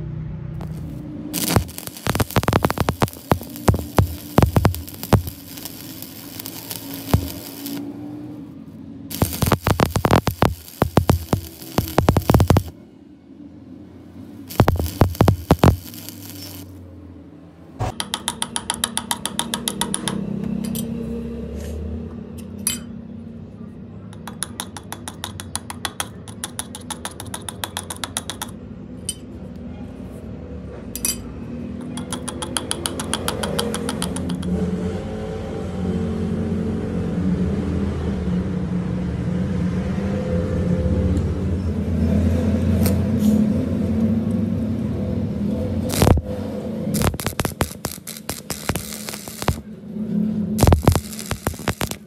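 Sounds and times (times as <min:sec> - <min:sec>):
fast even ticking: 0:00.6 - 0:07.8, 0:09.1 - 0:12.7, 0:14.5 - 0:16.7, 0:47.0 - 0:49.6, 0:50.6 - 0:52.0.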